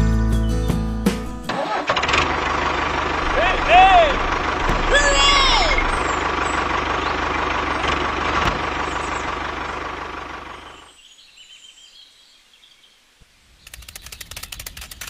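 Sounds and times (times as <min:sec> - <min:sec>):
tractor engine running: 0:01.2 - 0:10.9
fast even ticking: 0:02.2 - 0:10.7.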